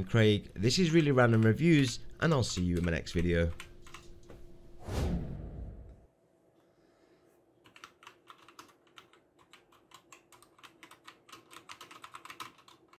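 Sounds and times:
mechanical keyboard typing: 0.7s - 4.0s, 7.6s - 13.0s.

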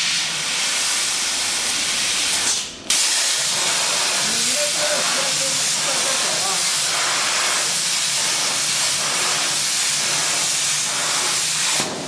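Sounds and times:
plasma cutter torch hissing: 0.0s - 12.0s.

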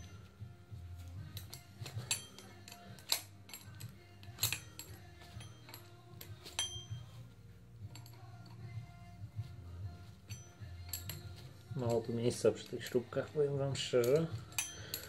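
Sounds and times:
wrench clicking on bolts: 1.3s - 7.0s, 10.3s - 15.0s.

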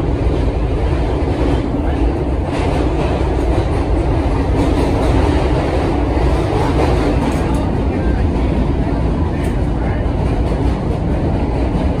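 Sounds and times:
subway car rumbling in tunnel: 0.0s - 12.0s.

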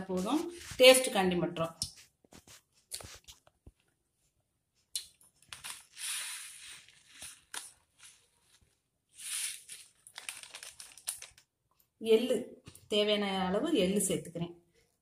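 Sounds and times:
plastic wrapper crinkling: 5.0s - 11.8s.

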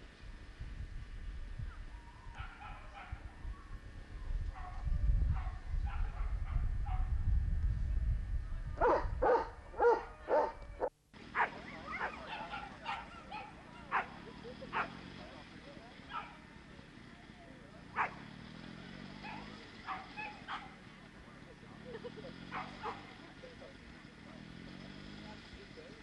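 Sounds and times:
dogs yelping and barking: 2.3s - 3.2s, 8.8s - 15.0s, 19.2s - 20.8s, 22.5s - 23.1s.

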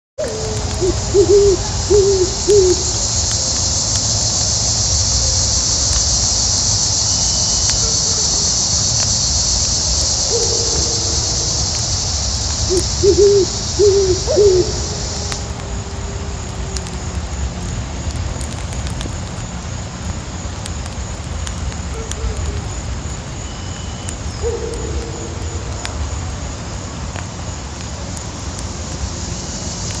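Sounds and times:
owl hooting: 0.2s - 3.4s, 10.2s - 15.5s
faint campfire crackle: 0.2s - 29.0s
crickets chirping: 0.2s - 30.0s.

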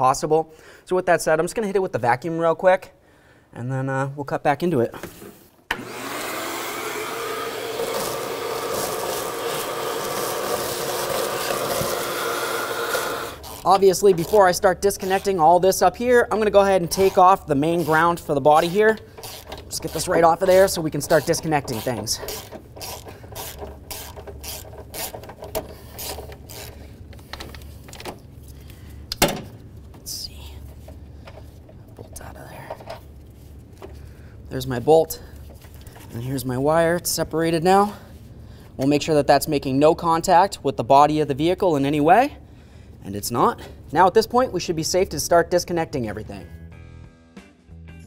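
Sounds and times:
vacuum cleaner running: 5.7s - 13.6s
ratchet wrench clicking: 18.9s - 21.4s, 22.3s - 26.8s.

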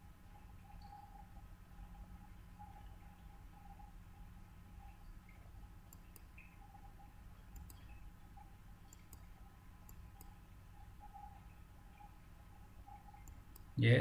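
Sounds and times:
faint steady hum: 0.0s - 14.0s
computer mouse clicks: 5.9s - 6.5s, 7.5s - 8.0s, 8.9s - 10.4s, 12.9s - 13.8s.

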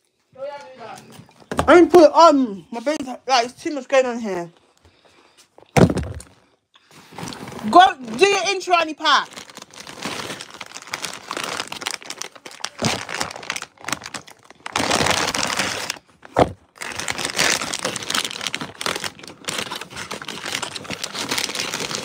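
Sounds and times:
plastic packaging crinkling: 5.8s - 22.0s.

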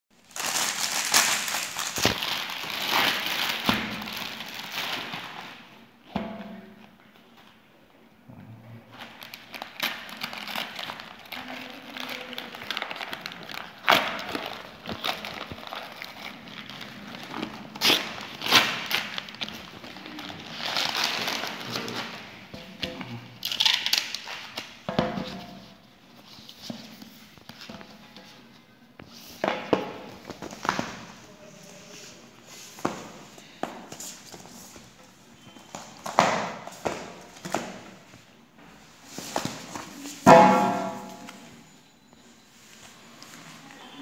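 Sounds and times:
plastic bag crinkling and tearing: 0.2s - 5.7s, 8.9s - 22.4s, 23.4s - 24.8s
plastic and tape popping: 0.4s - 5.5s.

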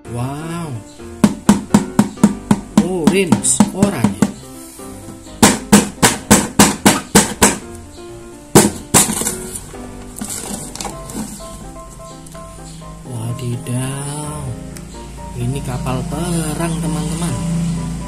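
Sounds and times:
stick popping through paper: 8.6s - 11.5s.

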